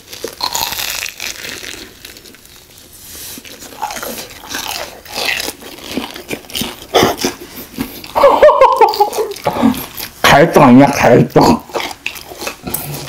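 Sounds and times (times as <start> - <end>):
crunchy chewing: 0.0 - 10.3, 11.4 - 13.0
loud laughter: 8.2 - 9.4.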